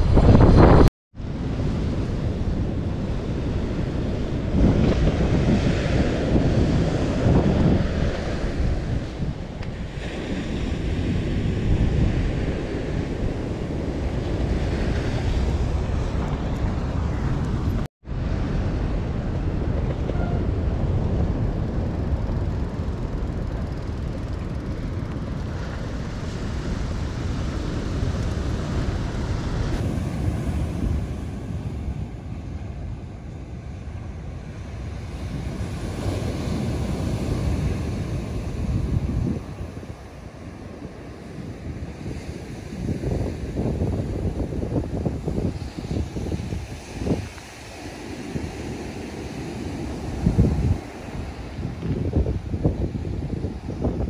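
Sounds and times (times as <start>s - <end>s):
wind buffeting microphone: 0.0s - 54.0s
surf breaking on beach: 24.4s - 54.0s.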